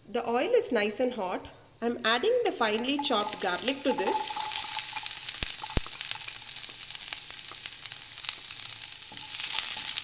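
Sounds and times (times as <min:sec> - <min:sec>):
garlic sizzling in oil: 0:02.4 - 0:10.0.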